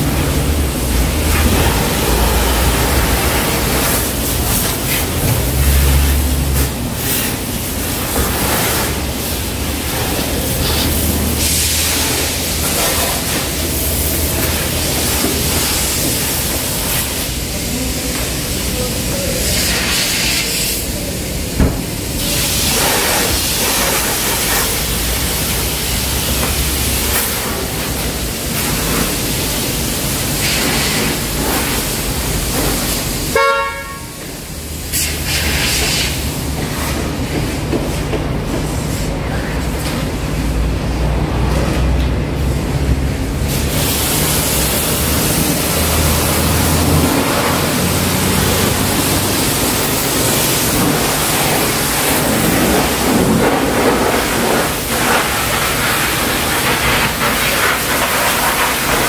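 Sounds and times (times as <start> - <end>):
pressure washer spray hissing: 0.0 - 37.0, 43.3 - 59.0
short horn toot: 33.3 - 34.2.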